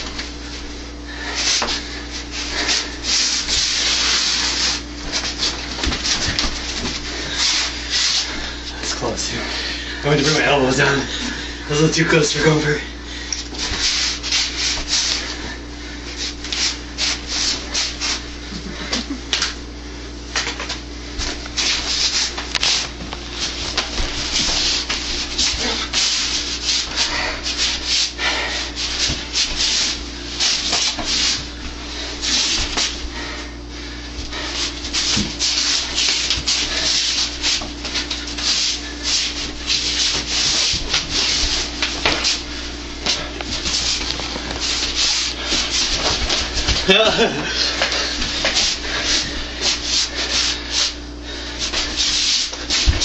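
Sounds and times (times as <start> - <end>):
sleeves brushing and rubbing: 1.3 - 8.6, 13.5 - 15.4, 21.5 - 33.3, 34.3 - 53.0.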